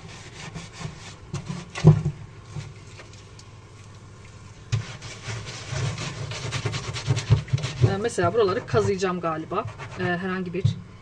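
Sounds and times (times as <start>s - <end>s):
lemon scrubbing rasping rub: 0.0s - 1.8s, 4.7s - 10.6s.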